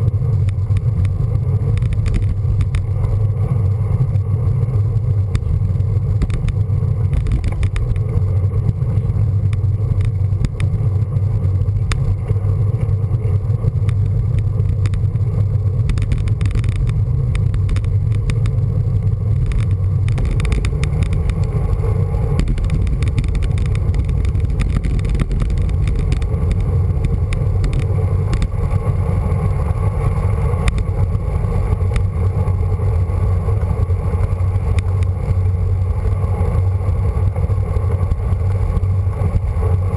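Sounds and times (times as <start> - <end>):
small clicks and rattles: 0.0 - 3.3, 5.0 - 29.8, 30.6 - 32.6
wind buffeting microphone: 0.0 - 39.9.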